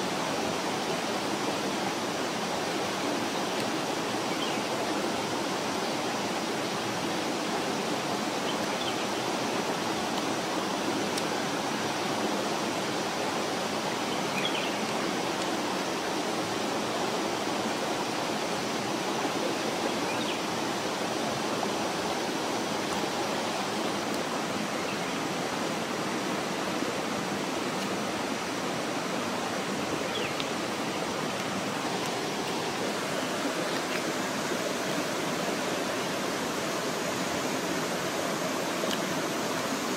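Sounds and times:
stream running over rocks: 0:00.0 - 0:39.9.

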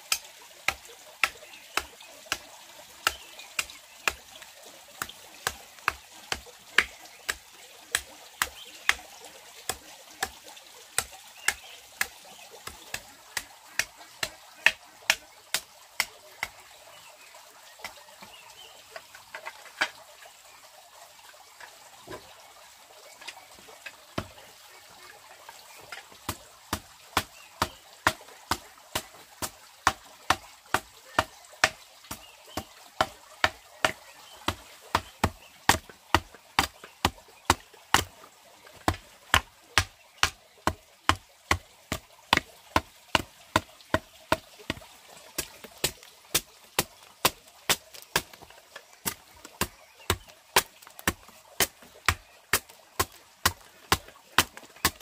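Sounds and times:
hand tool striking wood: 0:25.9 - 0:38.1, 0:38.8 - 0:55.0.

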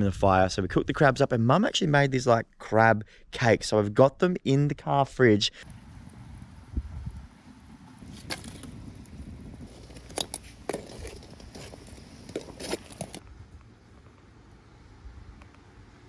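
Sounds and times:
wood fire crackling: 0:05.6 - 0:14.2.

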